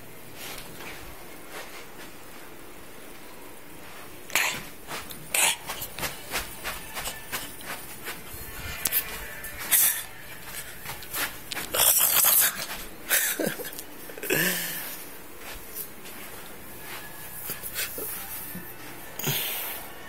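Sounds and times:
puppy snorting and sniffing: 4.3s - 8.2s, 11.1s - 13.7s.

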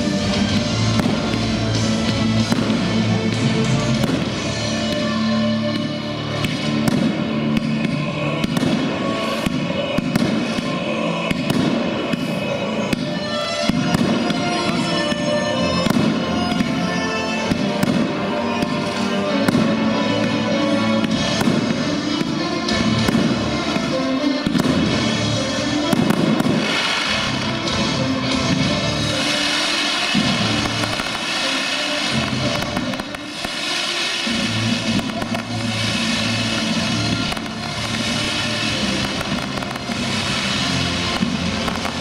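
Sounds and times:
fireworks bursting and crackling: 0.0s - 42.0s
music: 0.0s - 42.0s.

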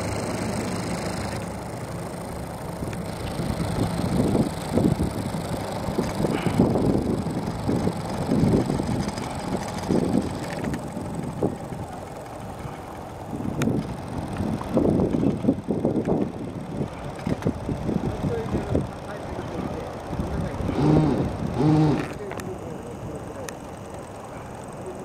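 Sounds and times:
wind buffeting microphone: 3.1s - 21.9s.

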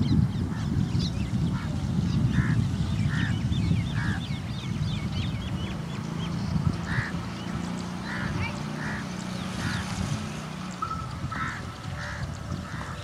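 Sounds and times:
birds honking calls: 0.0s - 13.0s
high bird chirps: 3.0s - 13.0s.

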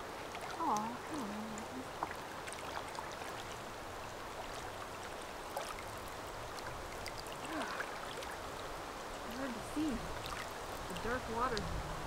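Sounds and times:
river water running: 0.0s - 12.0s
water splashes and trickles: 0.0s - 12.0s.

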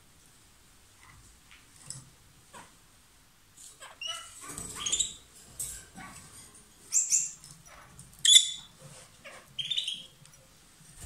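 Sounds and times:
lovebirds chirping and squawking: 3.7s - 5.3s, 6.8s - 10.2s.

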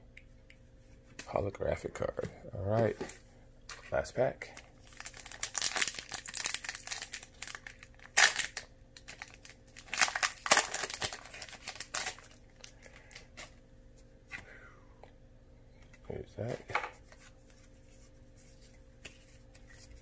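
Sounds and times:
foil rustling: 4.8s - 13.3s
foil wrapper tearing and crinkling: 4.8s - 13.5s.

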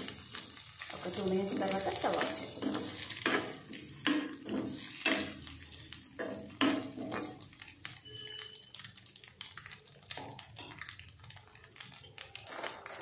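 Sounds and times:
metal spoon scraping a pan: 2.0s - 5.6s, 6.2s - 7.4s.

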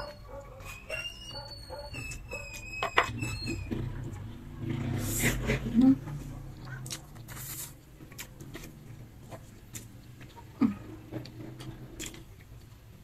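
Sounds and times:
person chewing noodles: 6.6s - 13.0s.

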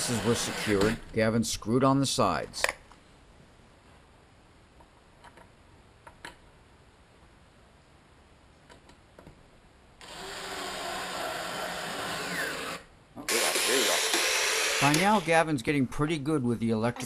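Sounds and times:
electric screwdriver driving screw: 0.0s - 1.0s, 10.0s - 15.3s.

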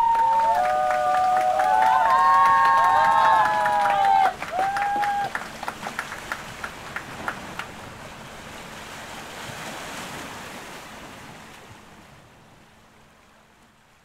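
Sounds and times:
sharp claps: 0.0s - 7.8s.

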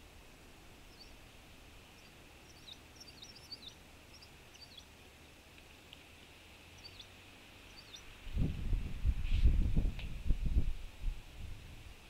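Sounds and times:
songbirds chirping: 0.0s - 8.5s
faint steady hiss: 0.0s - 12.0s.

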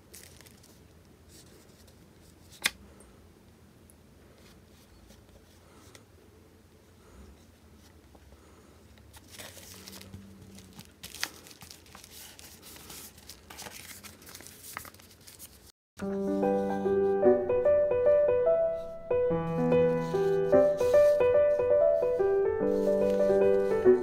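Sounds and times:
paper envelope rustling: 0.0s - 2.8s, 9.1s - 15.7s, 22.7s - 24.0s.

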